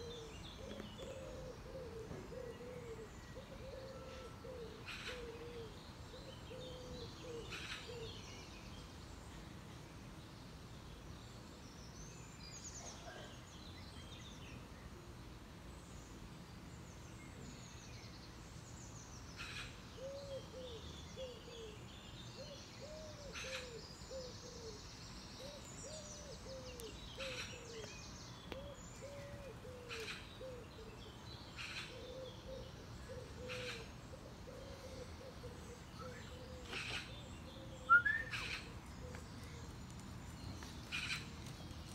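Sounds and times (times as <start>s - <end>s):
pigeon cooing: 0.0s - 5.7s, 28.6s - 31.0s, 31.9s - 39.2s
birds chirping: 0.0s - 14.9s, 16.8s - 41.9s.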